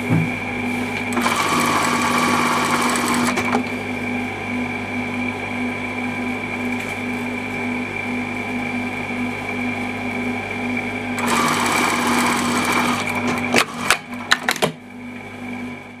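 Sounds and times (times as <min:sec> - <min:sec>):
sewing machine stitching: 0:01.1 - 0:03.7, 0:11.2 - 0:14.6.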